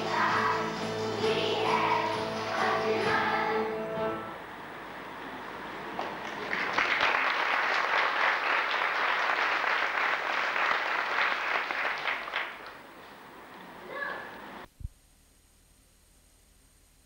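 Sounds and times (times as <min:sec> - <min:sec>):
audience applauding: 0:06.0 - 0:13.2.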